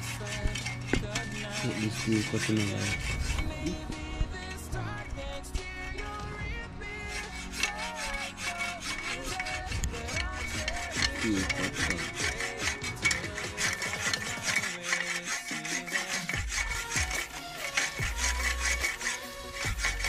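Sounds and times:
hacksaw cutting steel: 0:00.0 - 0:03.9, 0:07.0 - 0:20.0
faint music: 0:00.0 - 0:20.0.

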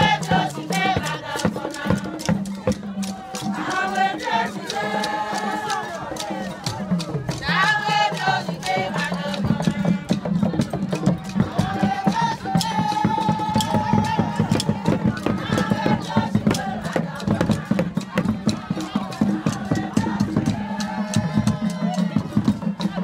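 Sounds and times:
rattles and drums beat: 0:00.0 - 0:23.0
voices singing: 0:00.0 - 0:23.0.

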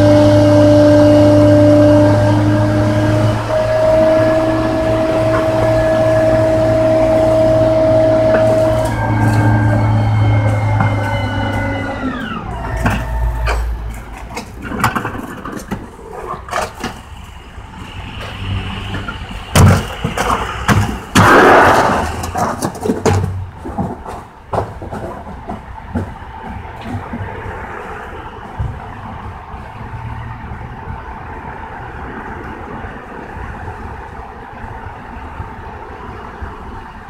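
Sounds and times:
garbage truck packer whine: 0:00.0 - 0:37.0
trash and cans clattering: 0:12.5 - 0:17.1, 0:18.9 - 0:27.6
loud rushing burst: 0:18.6 - 0:22.6.

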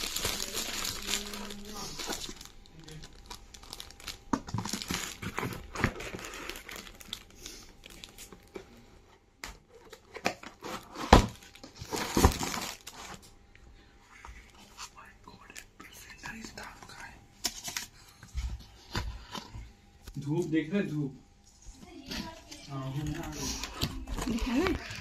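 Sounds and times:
plastic packaging crinkling: 0:00.0 - 0:08.6, 0:09.7 - 0:13.3, 0:21.8 - 0:25.0
cardboard rustling: 0:03.1 - 0:07.2, 0:09.7 - 0:13.2.

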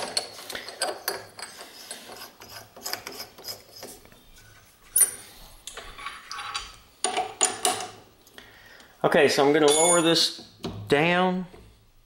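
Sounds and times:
ringing metal clink: 0:09.6 - 0:10.2.

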